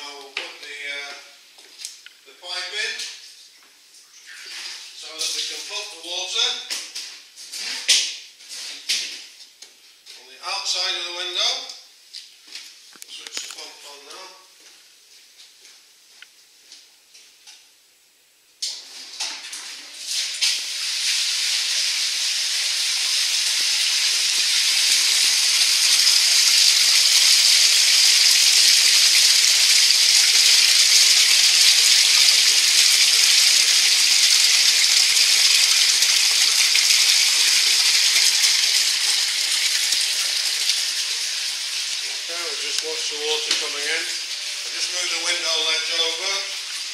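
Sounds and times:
water gushing from a hose: 20.0s - 46.9s
water splashing: 24.9s - 46.9s.

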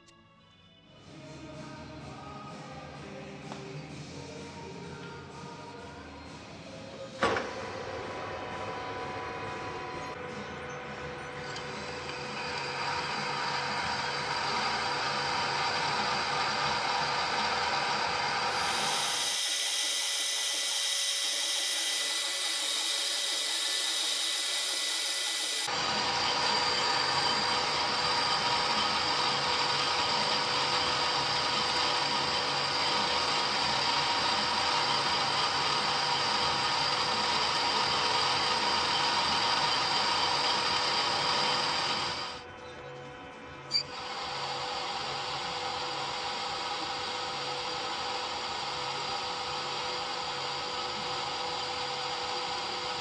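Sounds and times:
boring bar cutting metal: 7.2s - 42.4s
metal lathe whine: 7.2s - 53.0s.

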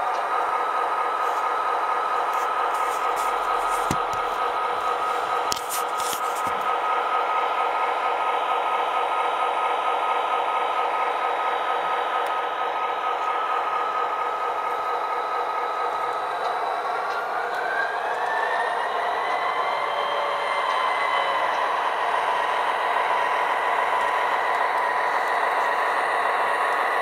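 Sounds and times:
diesel engine sound effect: 0.0s - 10.7s
model train whirring: 0.0s - 27.0s.

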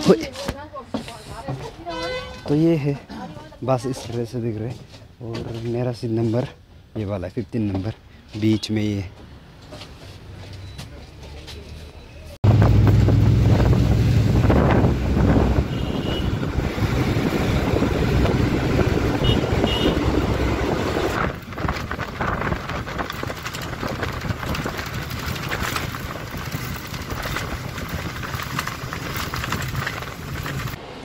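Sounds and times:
bus engine and road noise: 8.0s - 31.0s.

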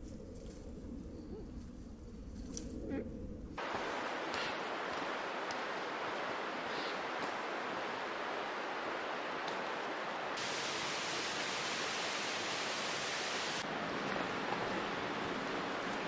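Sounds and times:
steady rushing outdoor noise: 3.6s - 16.0s.

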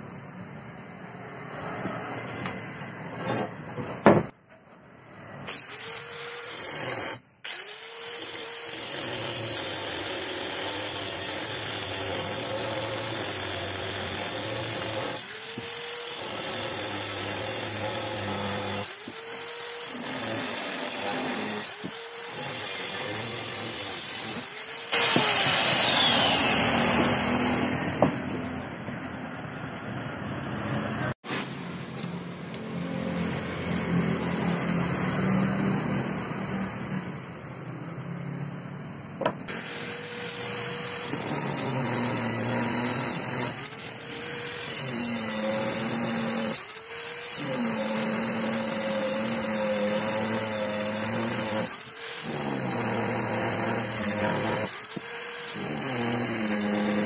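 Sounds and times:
angle grinder cutting steel: 5.4s - 28.8s, 39.4s - 57.0s.

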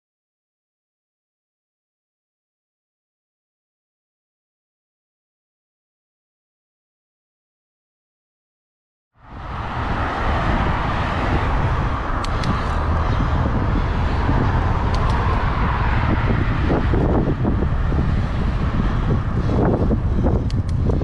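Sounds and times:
road and tyre noise: 9.2s - 21.0s
wind buffeting microphone: 9.2s - 21.0s
faint clicks: 12.2s - 12.6s.

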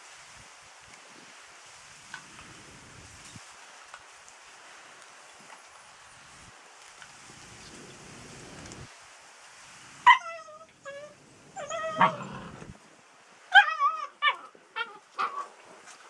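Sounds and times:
puppies yipping and whining: 10.1s - 12.7s.

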